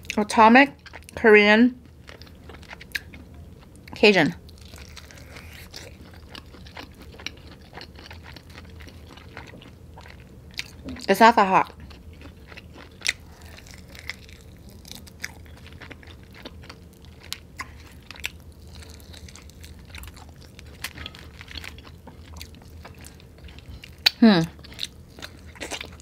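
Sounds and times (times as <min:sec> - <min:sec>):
chewing with wet mouth sounds: 0:00.0 - 0:01.2, 0:01.8 - 0:26.0.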